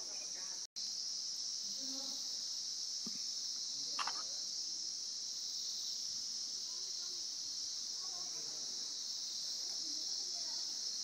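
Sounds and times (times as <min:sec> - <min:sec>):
shrill insect chorus: 0:00.0 - 0:11.0.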